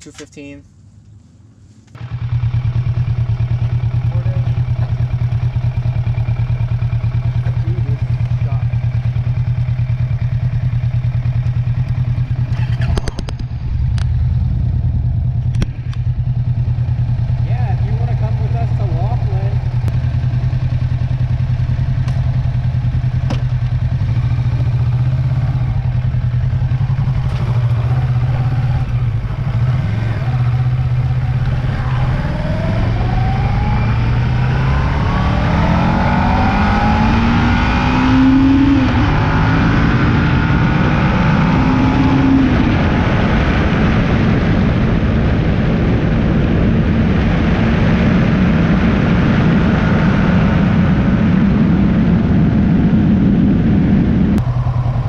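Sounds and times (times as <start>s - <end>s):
road and wind noise: 0.0s - 55.0s
motorcycle engine accelerating: 0.6s - 55.0s.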